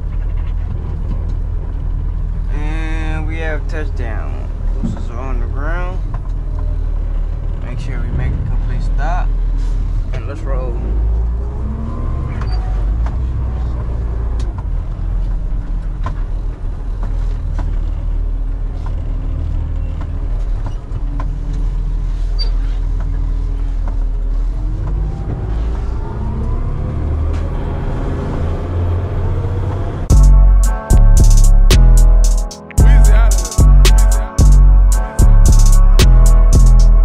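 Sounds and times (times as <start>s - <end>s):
diesel truck engine rumbling: 0.0s - 37.0s.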